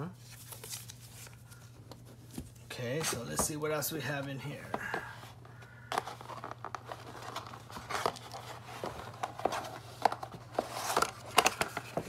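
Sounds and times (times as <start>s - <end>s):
cardboard box being handled: 5.9s - 12.0s.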